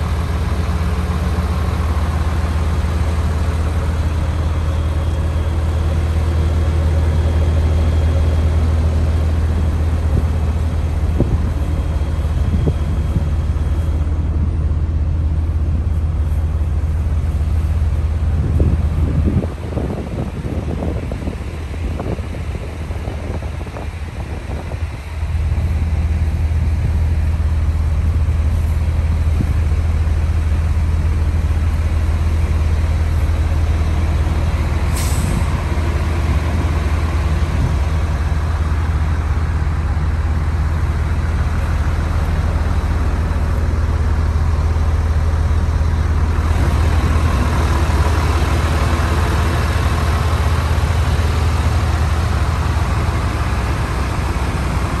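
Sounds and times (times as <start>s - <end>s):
diesel truck engine idling: 0.0s - 55.0s
brief hiss: 34.8s - 35.6s.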